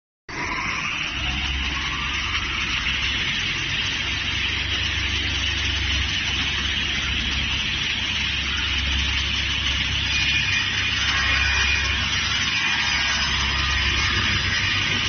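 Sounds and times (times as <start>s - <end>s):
low motor hum: 0.3s - 15.0s
saw whirring: 9.8s - 15.0s.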